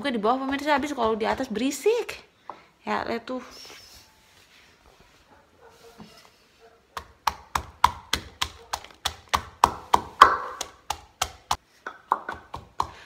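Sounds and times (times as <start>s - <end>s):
pestle pounding in mortar: 0.3s - 1.6s, 7.0s - 13.0s.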